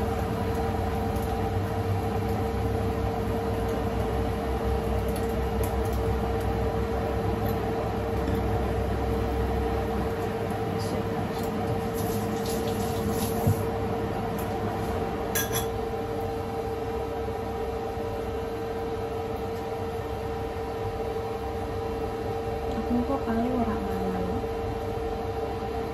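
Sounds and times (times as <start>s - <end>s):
kitchen appliance humming: 0.0s - 25.9s
glassy clink: 15.4s - 15.7s.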